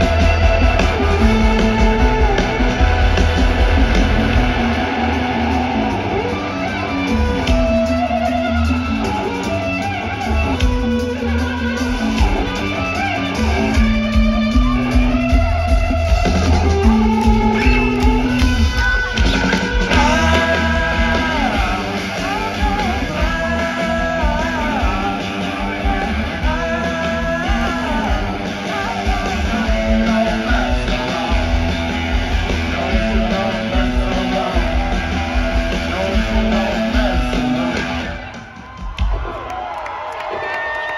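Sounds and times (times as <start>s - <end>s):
live rock band playing: 0.0s - 40.4s
person singing: 16.4s - 38.2s.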